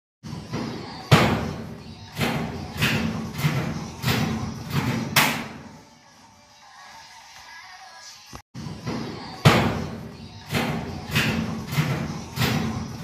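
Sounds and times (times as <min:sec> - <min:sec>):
metal sheet thudding and rattling: 0:00.4 - 0:05.7, 0:08.8 - 0:13.0.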